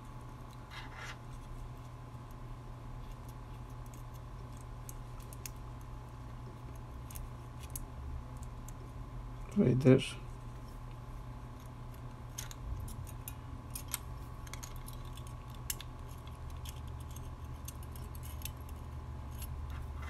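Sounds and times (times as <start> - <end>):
small parts tapping together: 3.0 - 5.9, 6.6 - 8.8, 11.5 - 20.0.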